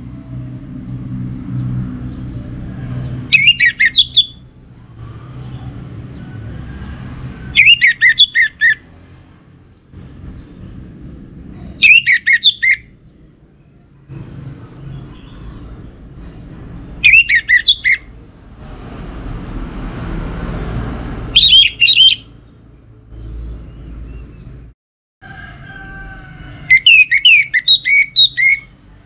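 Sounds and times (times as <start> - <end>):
thrush singing whistled phrases: 3.3 - 4.4, 7.5 - 8.8, 11.8 - 12.9, 17.0 - 18.1, 21.3 - 22.3, 26.7 - 28.7
rushing noise: 15.8 - 21.9.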